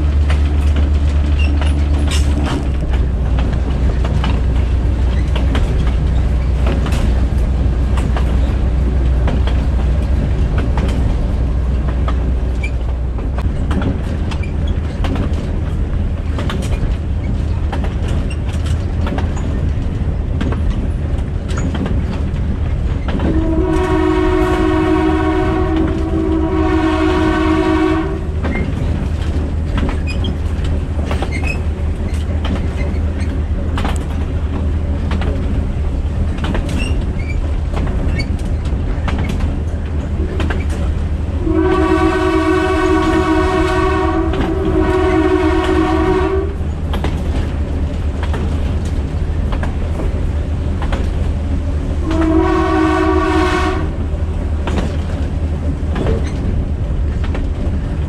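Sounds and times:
wheels clacking over rail joints: 0.0 - 52.5, 53.8 - 58.0
train rumble: 0.0 - 58.0
locomotive horn blasts: 23.3 - 28.4, 41.4 - 46.6, 52.0 - 54.0.

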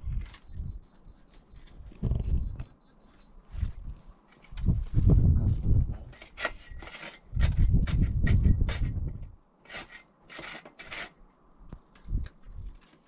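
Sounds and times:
scraping on rough debris: 3.6 - 11.2.

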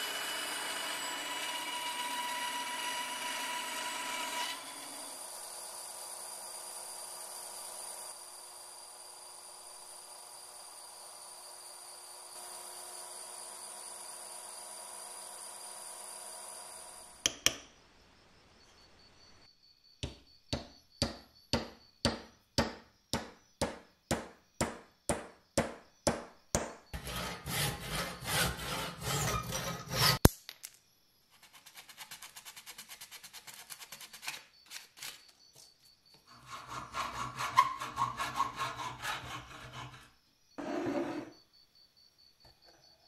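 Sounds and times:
hammer knocking wooden wedge: 20.0 - 27.2
handsaw cutting wood: 27.0 - 30.2, 36.3 - 40.1
hacksaw sawing steel rod: 27.0 - 30.3, 36.3 - 40.1.

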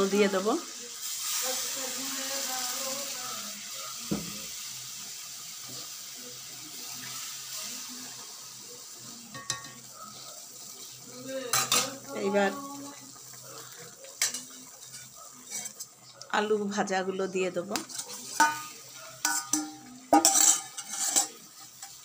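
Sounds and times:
water simmering hiss: 0.0 - 22.0
metal spatula scraping a pan: 9.2 - 16.2, 17.7 - 22.0.

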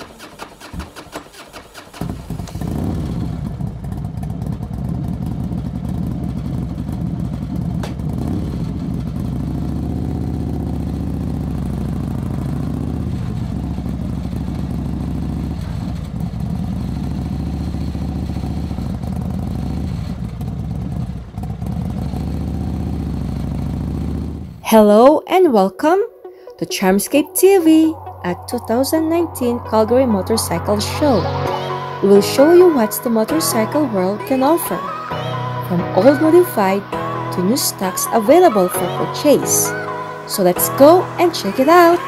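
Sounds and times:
motorcycle engine running: 2.0 - 24.6.

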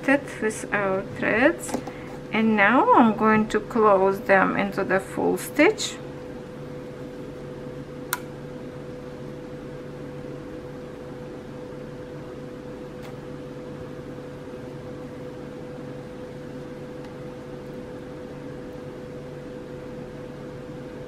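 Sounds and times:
machine hum: 0.0 - 21.0
light click: 8.1 - 8.3.

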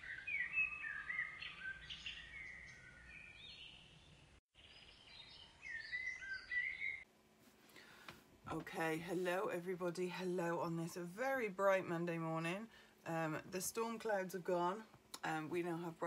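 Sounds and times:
songbirds chirping: 0.0 - 7.1.

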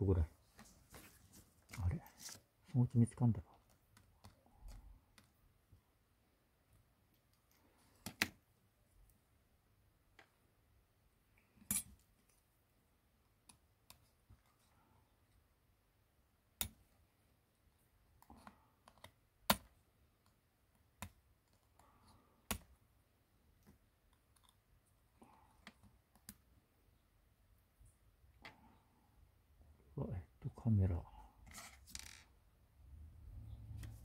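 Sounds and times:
soft handling noise: 0.3 - 5.4, 31.3 - 32.3.

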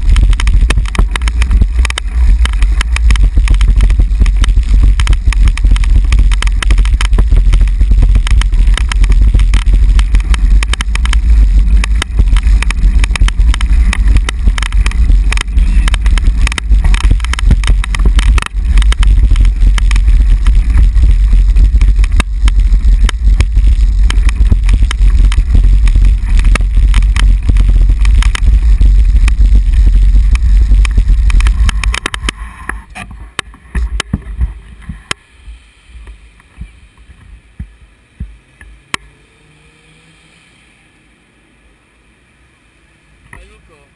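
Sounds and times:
bicycle rattling over cobblestones: 0.0 - 35.1
wind buffeting microphone: 0.0 - 35.2.

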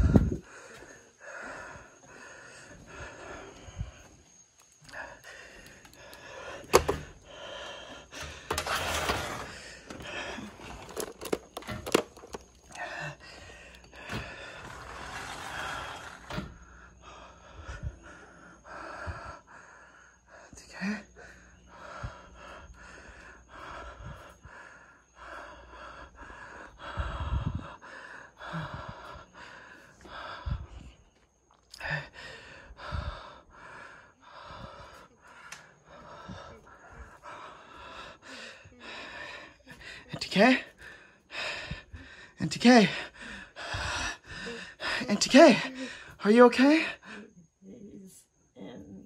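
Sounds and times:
person panting and gasping: 16.6 - 31.1, 31.7 - 47.4.

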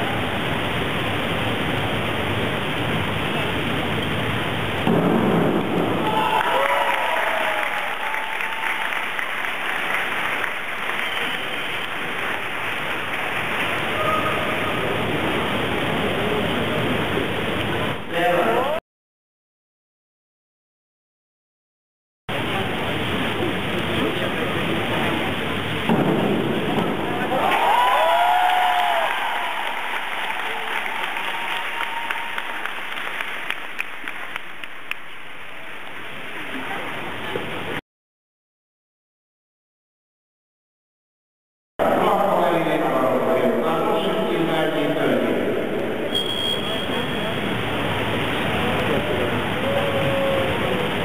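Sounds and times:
spectators applauding: 5.9 - 14.9, 27.2 - 35.3.

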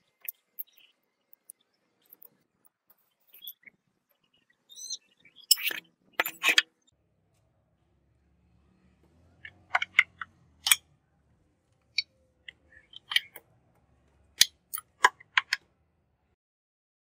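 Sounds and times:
metal clicks and taps: 5.5 - 6.6, 12.5 - 13.4, 14.4 - 15.6.

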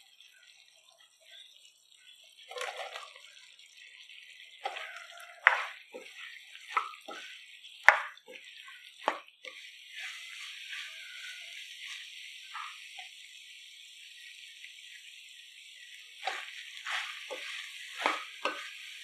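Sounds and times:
sauce squelching: 4.6 - 12.9, 16.2 - 19.0
spatula scraping a wok: 4.6 - 13.0, 16.2 - 19.0
steady hiss: 9.4 - 19.0.

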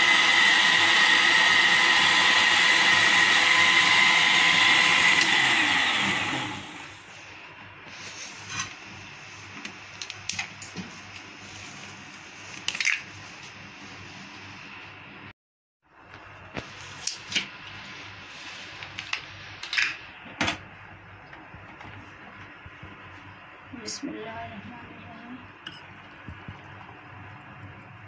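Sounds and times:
blender running: 0.0 - 7.1.

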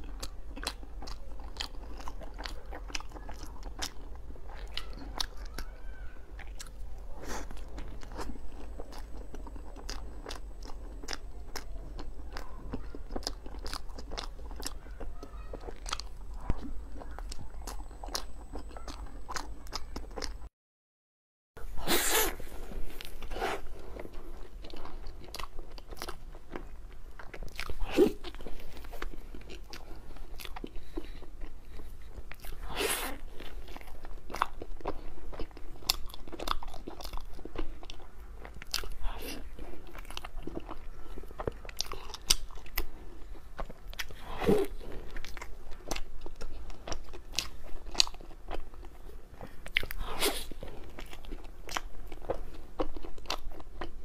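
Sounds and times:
person chewing: 0.0 - 20.5, 21.6 - 54.0.

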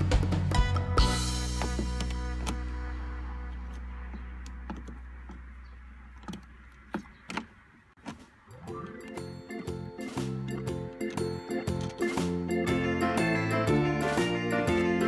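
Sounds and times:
background music: 0.0 - 5.3, 8.5 - 15.0
tool clicking on plastic dashboard: 4.0 - 8.3.

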